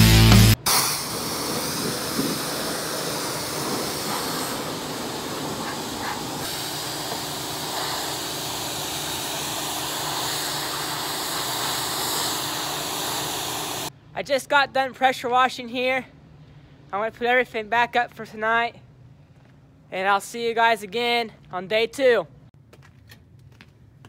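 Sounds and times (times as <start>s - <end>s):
background music: 0.0s - 0.6s
pressure washer spraying: 0.4s - 13.9s.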